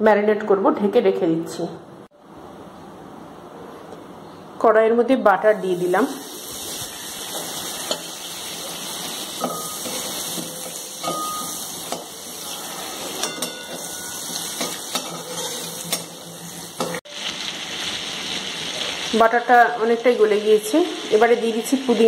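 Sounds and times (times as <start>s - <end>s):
butter sizzling in a pan: 5.6s - 22.0s.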